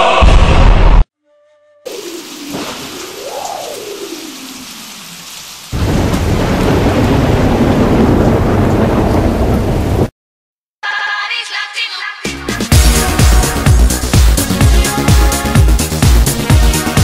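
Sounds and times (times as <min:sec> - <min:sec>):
rain: 0:01.9 - 0:10.1
deep thunder rumble: 0:05.7 - 0:10.1.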